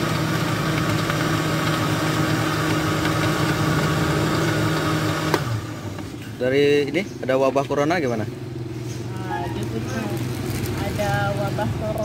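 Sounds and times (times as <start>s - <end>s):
blender motor running: 0.0s - 6.1s.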